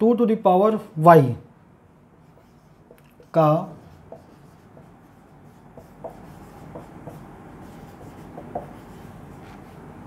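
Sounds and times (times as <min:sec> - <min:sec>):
marker squeaking on whiteboard: 0:02.2 - 0:09.8.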